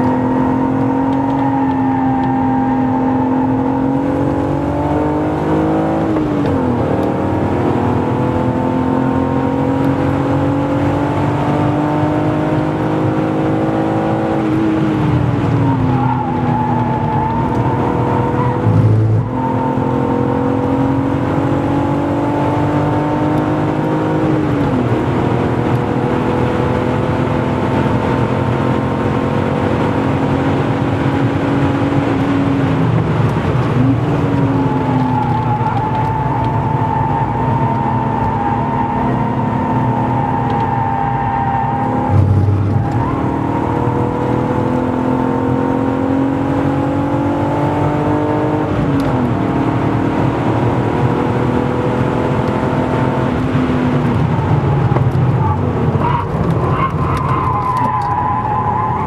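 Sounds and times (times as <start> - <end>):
car engine revving in cabin: 0.0 - 59.0.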